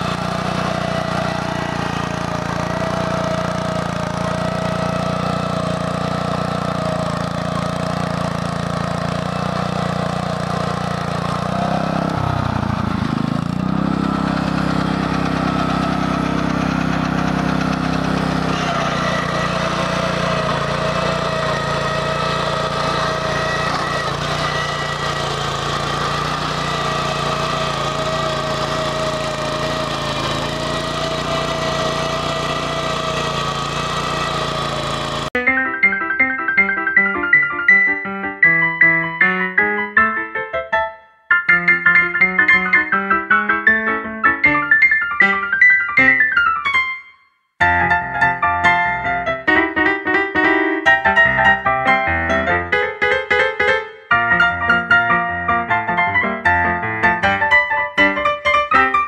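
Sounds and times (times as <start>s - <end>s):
tractor engine running: 0.0s - 35.4s.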